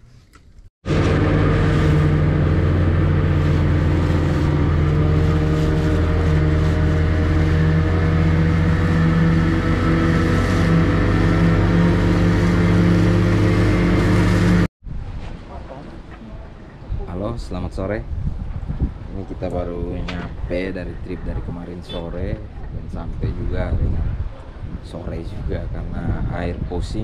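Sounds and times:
boat motor running: 0.8 - 14.7
water rushing along hull: 0.8 - 17.1.

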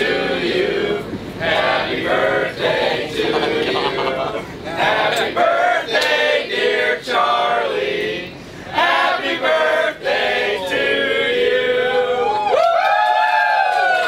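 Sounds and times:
group of voices singing: 0.0 - 12.3.

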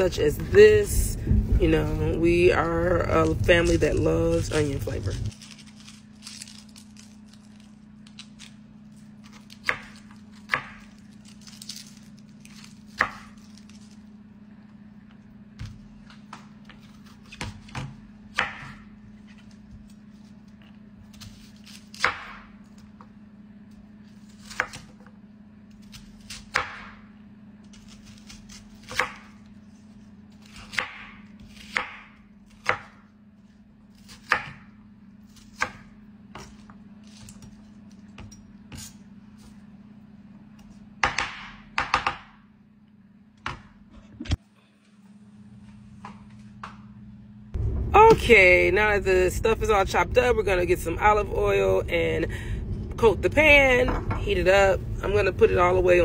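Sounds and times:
knife chopping on wooden board: 9.4 - 10.9, 15.6 - 18.8, 30.4 - 33.0, 41.0 - 42.4.

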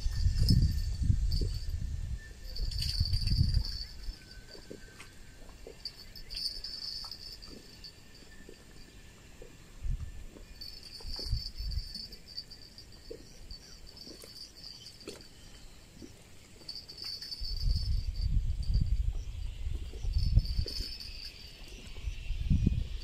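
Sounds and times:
wind buffeting microphone: 0.0 - 4.8, 9.4 - 14.4, 16.9 - 23.0
insects chirring: 0.0 - 23.0.

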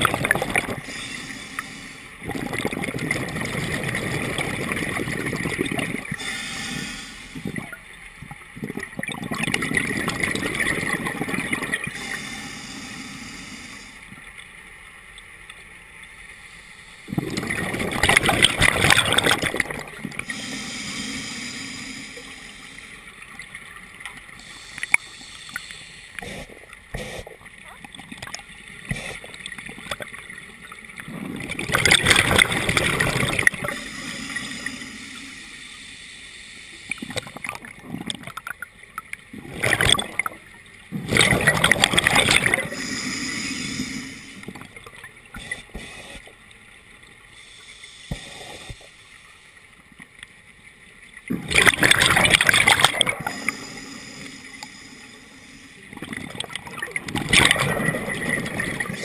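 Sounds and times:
underwater exhaled bubbles gurgling: 0.0 - 14.3, 17.0 - 35.8, 36.8 - 47.2, 50.8 - 59.0
scuba regulator hissing: 6.2 - 7.5, 11.9 - 14.0, 20.2 - 23.0, 33.5 - 36.7, 42.3 - 44.4, 52.6 - 55.9.

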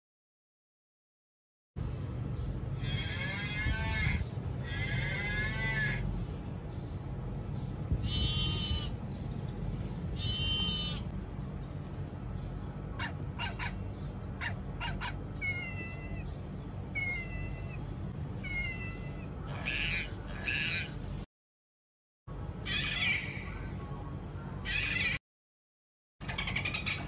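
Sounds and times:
puppy barks: 13.0 - 13.8, 14.4 - 16.1
kitten meowing: 15.4 - 16.3, 17.0 - 17.8, 18.4 - 19.9.

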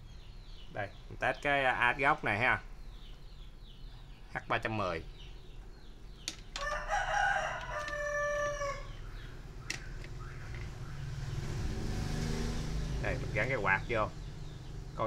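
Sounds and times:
rooster crowing: 6.6 - 9.2.

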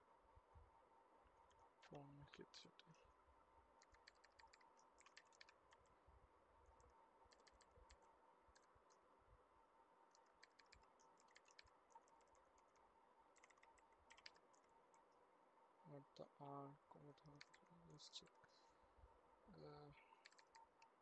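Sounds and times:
faint steady hum: 0.0 - 21.0
computer keyboard typing: 3.8 - 5.9, 6.8 - 8.8, 10.1 - 15.1, 17.2 - 18.4, 20.1 - 21.0.

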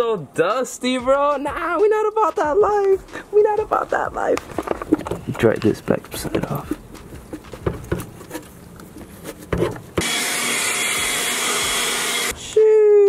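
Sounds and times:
electric air blower hissing: 10.0 - 12.5.

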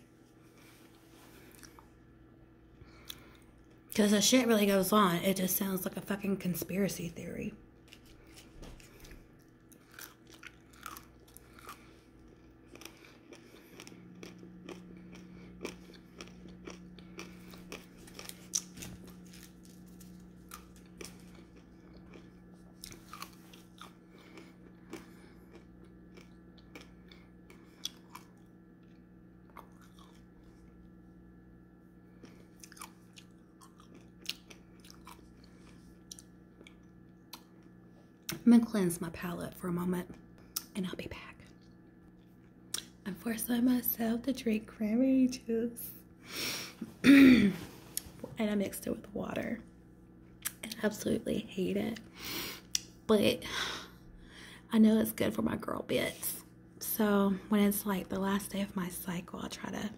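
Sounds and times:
person chewing candy: 7.8 - 30.9, 32.1 - 38.4.

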